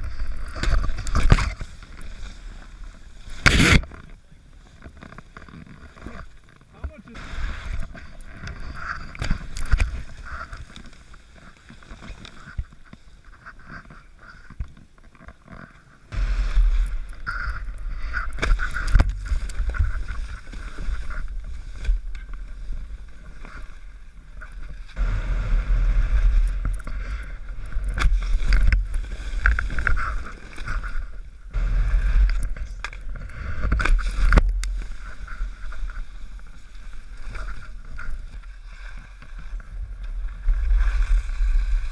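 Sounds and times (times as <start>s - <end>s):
wind buffeting microphone: 25.0s - 38.5s.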